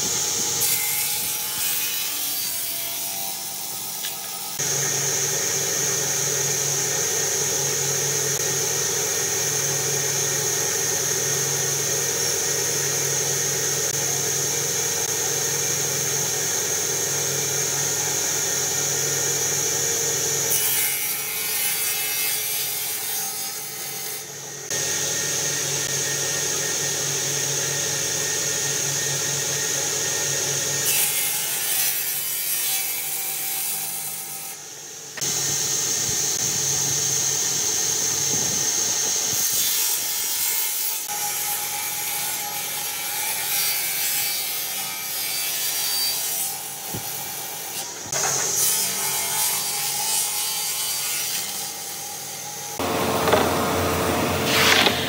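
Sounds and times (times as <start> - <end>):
circular saw whining: 0.0 - 55.0
saw ripping through wood: 52.8 - 55.0.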